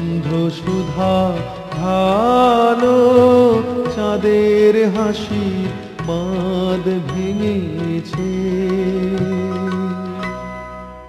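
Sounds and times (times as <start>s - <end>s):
struck notes ringing: 6.0s - 11.0s.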